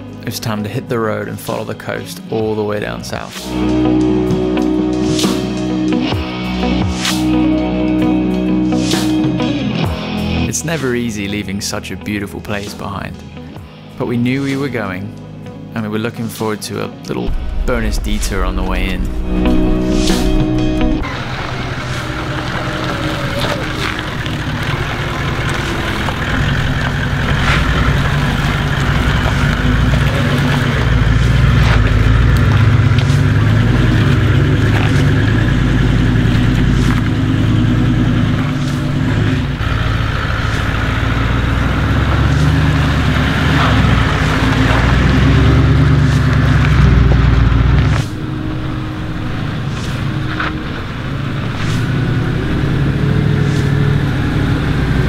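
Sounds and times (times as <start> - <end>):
vehicle engine crawling: 17.1 - 55.0.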